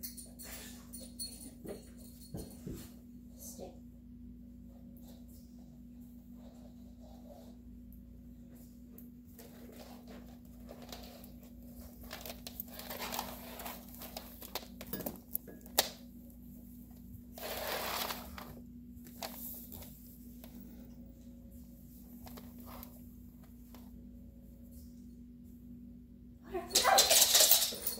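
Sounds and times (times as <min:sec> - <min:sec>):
leash dragging across rugs: 0:09.4 - 0:14.5, 0:17.3 - 0:18.6.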